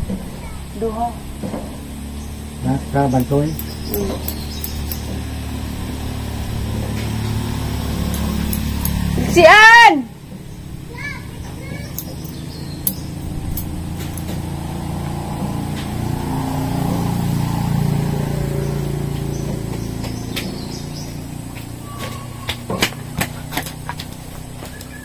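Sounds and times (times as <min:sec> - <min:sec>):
vehicle engine passing by: 0:00.0 - 0:25.0
sharp clicks: 0:03.0 - 0:05.4, 0:06.8 - 0:09.2, 0:11.7 - 0:14.5.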